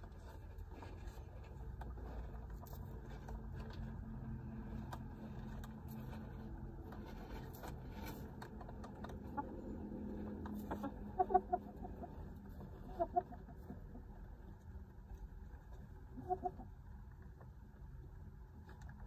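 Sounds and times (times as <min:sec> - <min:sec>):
hens clucking softly: 0:08.6 - 0:14.7, 0:15.3 - 0:17.1.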